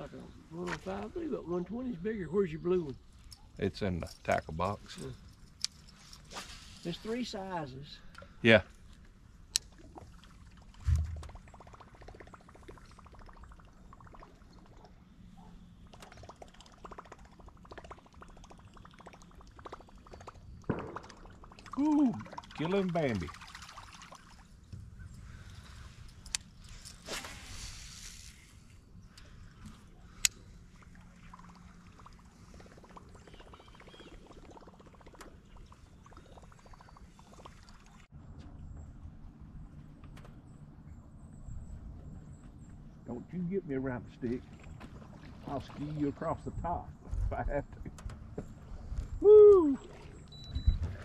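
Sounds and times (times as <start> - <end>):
dull thump: 10.8 - 11.3.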